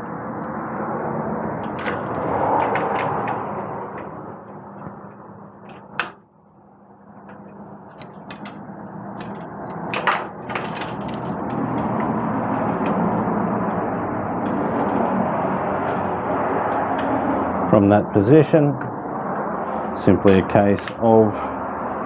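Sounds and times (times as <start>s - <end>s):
steady background noise: 0.0s - 22.0s
metal clatter: 8.0s - 12.1s.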